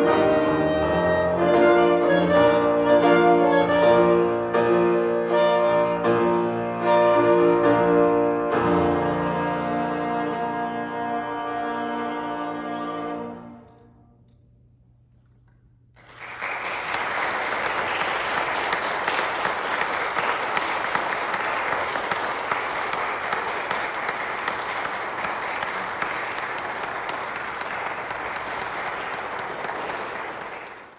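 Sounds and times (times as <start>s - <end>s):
audience applause: 16.0s - 30.9s.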